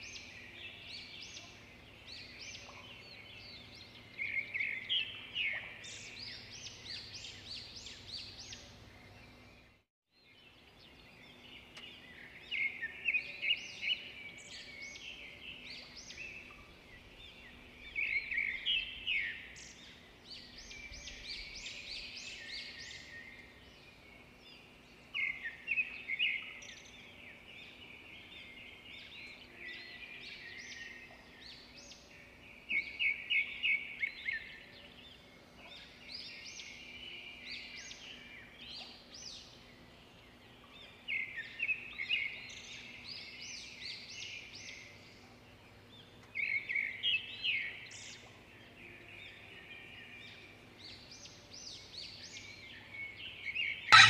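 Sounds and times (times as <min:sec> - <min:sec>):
songbird chirping: 0:00.0 - 0:54.0
faint bird chatter: 0:43.9 - 0:54.0.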